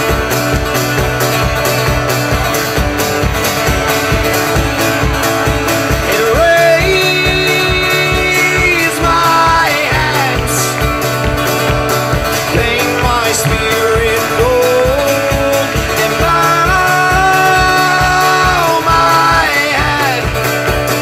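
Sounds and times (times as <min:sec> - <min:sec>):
strummed acoustic guitar: 0:00.0 - 0:21.0
man singing: 0:05.9 - 0:10.9, 0:12.4 - 0:21.0.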